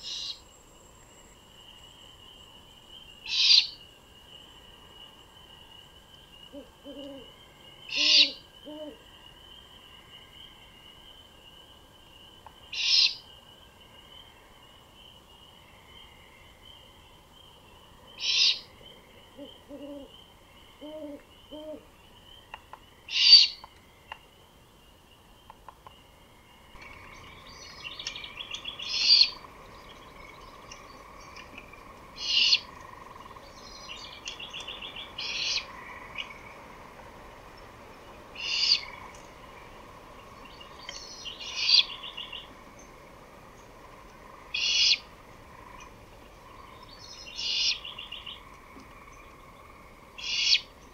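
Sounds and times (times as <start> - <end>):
birdsong chirping: 1.1 - 36.7, 37.4 - 50.9
owl hooting: 3.3 - 3.8, 6.5 - 9.0, 12.7 - 13.2, 18.2 - 18.6, 19.4 - 20.2, 20.8 - 21.9, 23.1 - 23.6, 28.0 - 29.5, 32.2 - 33.3, 34.3 - 36.4, 38.4 - 39.0, 41.4 - 42.5, 44.5 - 45.9, 47.3 - 48.4, 50.2 - 50.7.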